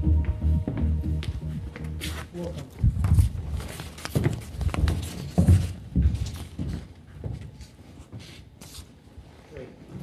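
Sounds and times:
footsteps on hard floor: 0.0 - 9.0.

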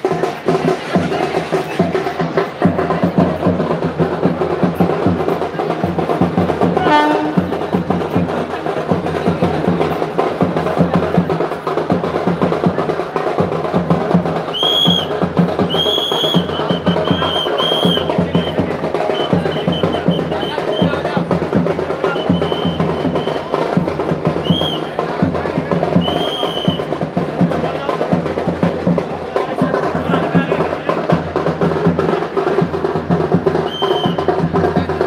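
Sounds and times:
drums playing fast beat: 0.0 - 35.0
shrill whistle blasts: 14.5 - 21.0, 22.0 - 23.6, 24.4 - 24.9, 26.0 - 26.9, 33.6 - 34.3.

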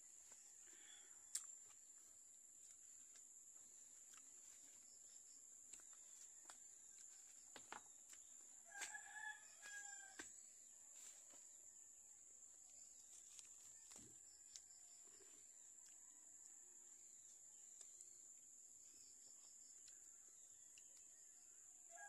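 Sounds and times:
insect drone: 0.0 - 22.0
rooster crowing: 8.5 - 10.3.

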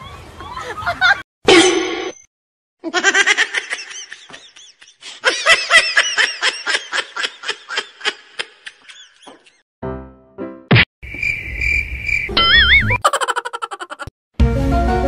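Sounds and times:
person laughing in high-pitched bursts: 2.8 - 9.3, 12.4 - 14.1.

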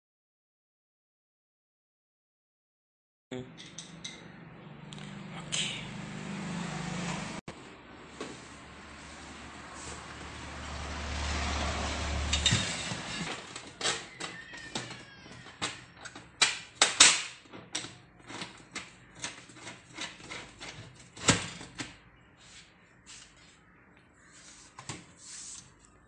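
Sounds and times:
oven door squeak: 12.5 - 16.1.

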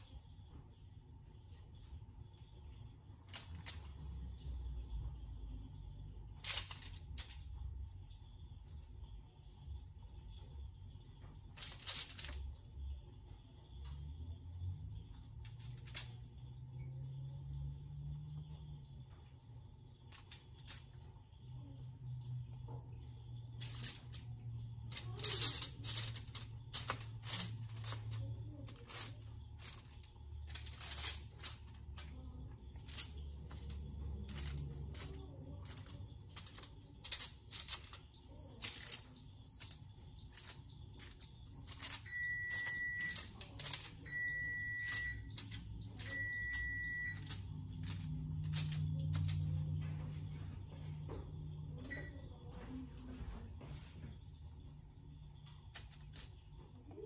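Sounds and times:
dough set on foil-lined sheet: 11.4 - 12.6, 23.5 - 49.8
short electronic beeps: 37.2 - 47.4.

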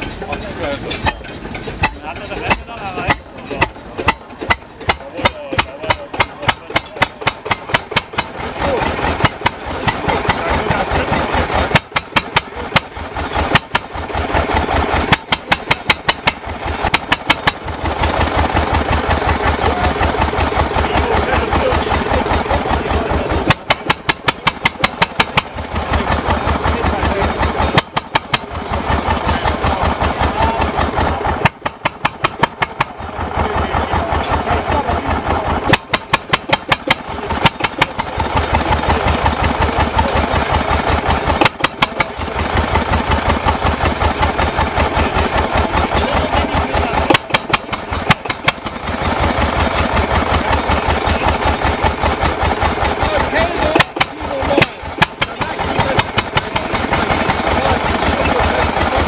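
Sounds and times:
diesel engine firing unevenly: 0.0 - 59.0.

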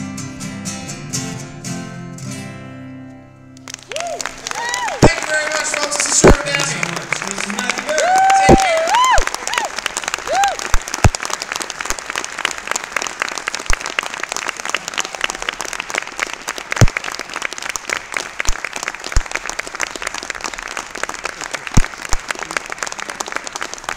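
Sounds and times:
audience applauding: 3.6 - 23.9
loud single claps close by: 4.9 - 9.4, 10.7 - 11.5, 16.7 - 17.2.

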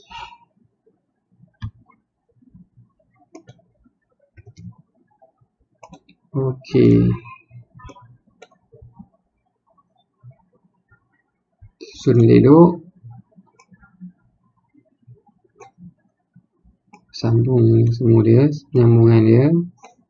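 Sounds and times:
computer mouse clicks: 1.6 - 2.0, 3.3 - 3.7, 4.4 - 4.8, 5.8 - 6.2, 7.8 - 9.1, 13.5 - 14.0, 15.6 - 15.9, 16.9 - 17.1, 19.8 - 20.0.

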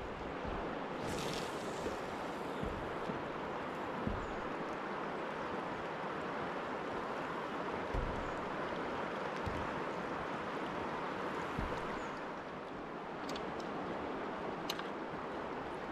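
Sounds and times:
soft low thumps: 0.0 - 4.9, 7.9 - 8.7, 11.5 - 12.1.

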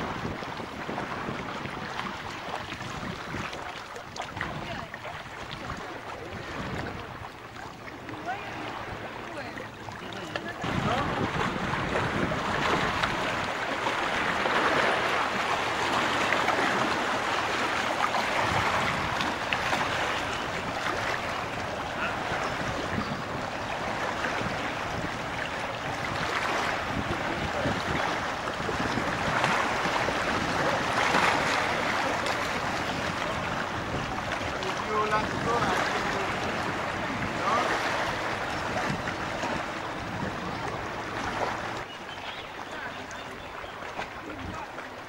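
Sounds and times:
wind buffeting microphone: 0.0 - 42.0
small waves washing on shore: 0.0 - 45.0.

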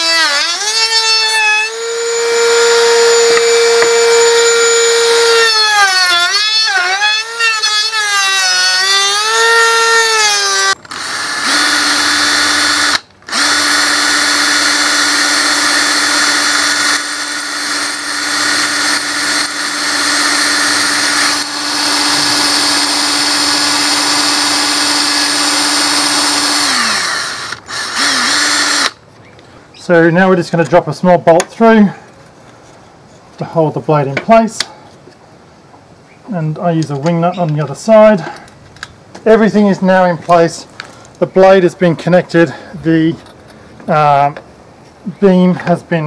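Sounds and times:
cordless drill boring wood: 0.0 - 29.0.

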